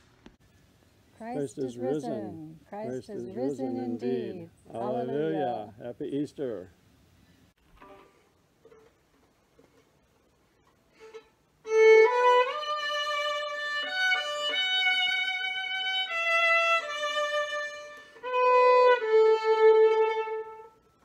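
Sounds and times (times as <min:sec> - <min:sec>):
bowed violin melody: 0:11.0 - 0:21.0.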